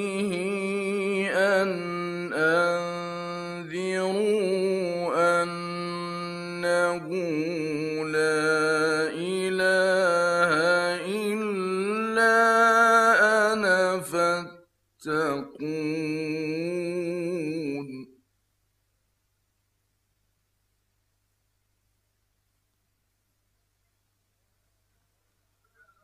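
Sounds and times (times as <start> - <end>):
man chanting: 0.0 - 18.2.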